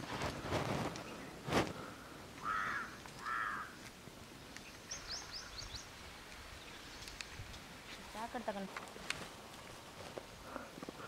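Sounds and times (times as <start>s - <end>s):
sharp rustle: 0.0s - 1.8s
crow cawing: 2.4s - 3.8s
small bird chirping: 4.5s - 7.4s.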